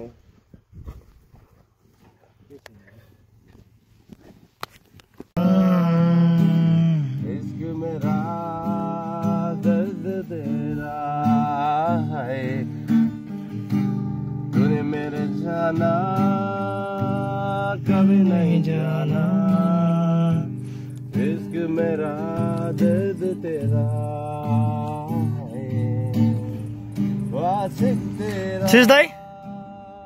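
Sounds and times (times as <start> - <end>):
acoustic guitar music: 5.4 - 30.0.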